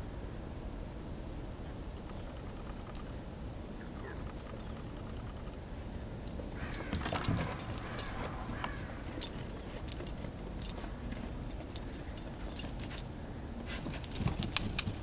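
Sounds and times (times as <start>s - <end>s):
collar tags clinking: 3.8s - 15.0s
puppy snuffling in snow: 13.6s - 14.1s.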